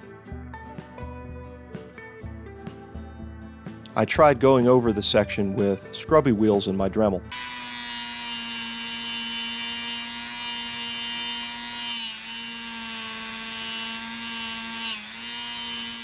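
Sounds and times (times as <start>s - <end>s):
rotary tool motor whine: 7.3s - 16.0s.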